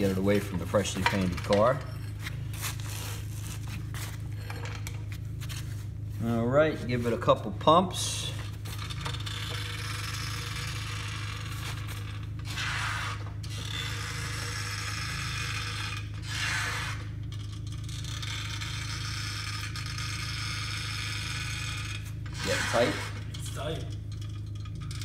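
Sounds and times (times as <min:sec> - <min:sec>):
steady low hum: 0:00.0 - 0:25.0
rasping jack strokes: 0:08.7 - 0:23.7.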